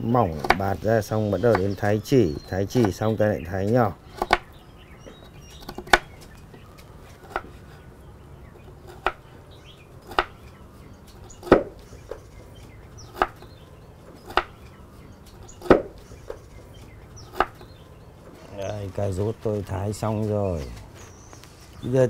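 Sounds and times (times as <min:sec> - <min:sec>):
knife chopping on wooden board: 0:00.3 - 0:00.8, 0:04.2 - 0:06.1, 0:08.8 - 0:09.2, 0:10.1 - 0:10.4, 0:11.4 - 0:12.2, 0:13.1 - 0:13.5, 0:14.2 - 0:14.7, 0:15.6 - 0:16.4, 0:17.3 - 0:17.7.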